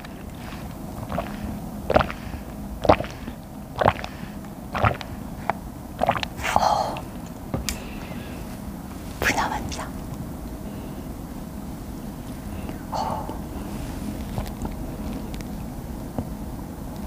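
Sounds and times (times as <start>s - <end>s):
gulping: 0.0s - 7.0s
drinking through a straw: 0.0s - 7.1s.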